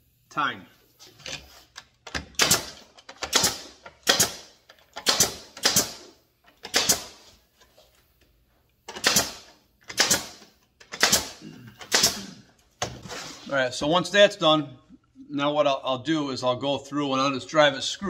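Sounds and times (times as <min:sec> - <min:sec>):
pneumatic nailer shots: 0:01.2 - 0:07.4, 0:08.9 - 0:13.1.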